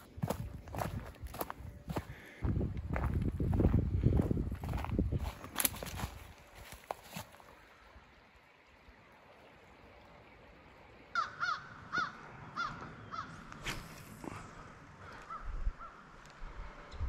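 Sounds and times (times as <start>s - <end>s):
bird calling: 11.1s - 14.1s, 15.0s - 16.2s.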